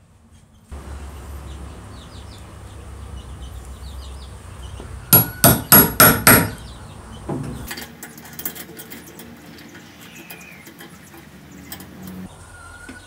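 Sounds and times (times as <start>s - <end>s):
hammer blows on hole-saw bit: 5.2s - 6.6s.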